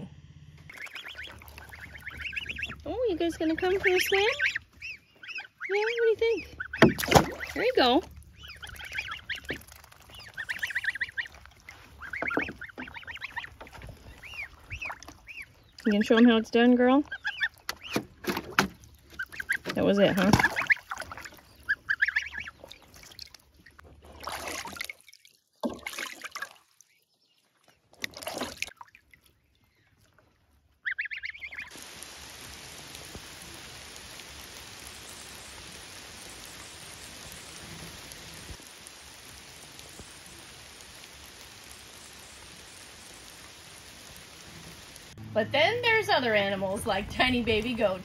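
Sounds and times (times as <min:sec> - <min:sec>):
steady rain falling: 0:31.7 - 0:45.2.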